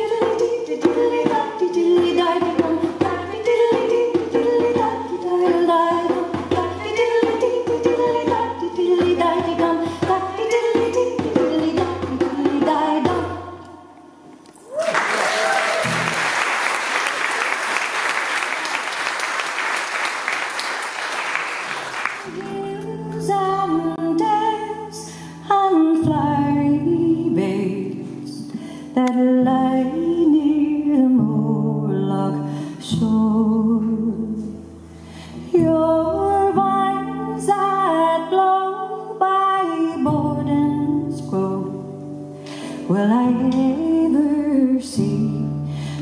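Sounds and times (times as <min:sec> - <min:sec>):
woman singing: 0:00.0 - 0:14.0, 0:22.3 - 0:34.7, 0:35.4 - 0:46.0
acoustic guitar: 0:00.0 - 0:14.2, 0:15.8 - 0:16.6, 0:21.7 - 0:46.0
audience applause: 0:14.6 - 0:22.4.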